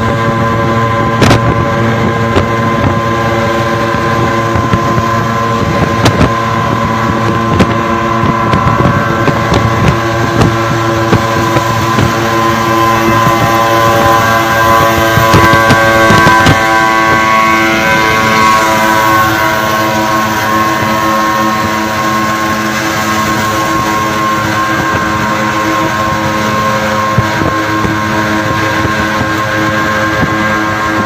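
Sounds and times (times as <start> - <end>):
two-stroke engine running: 0.0 - 31.0
wind buffeting microphone: 0.0 - 31.0.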